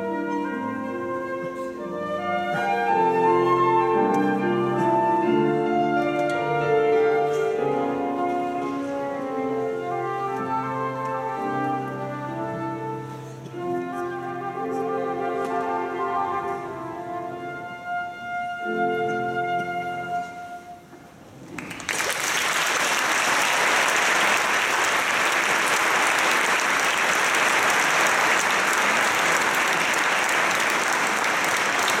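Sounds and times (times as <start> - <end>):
audience applauding: 21.4 - 32.0.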